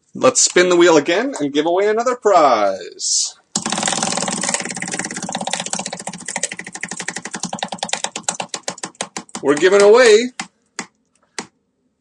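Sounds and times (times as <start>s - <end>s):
prize wheel ticking: 3.6s - 10.5s.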